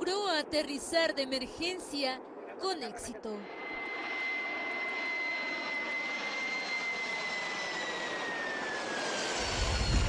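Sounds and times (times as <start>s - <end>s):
jet engine whine: 0.0s - 10.0s
deep rumble: 9.4s - 10.0s.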